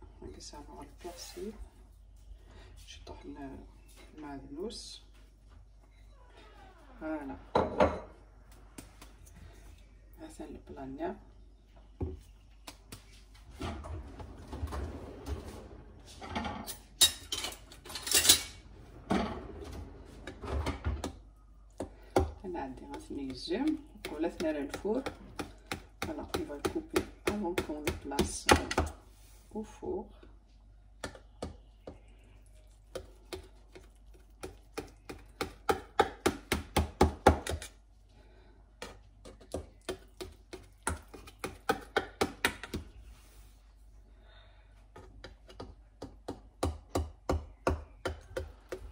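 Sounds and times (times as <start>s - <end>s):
metal utensils and dishes clattering: 16.2s - 19.4s.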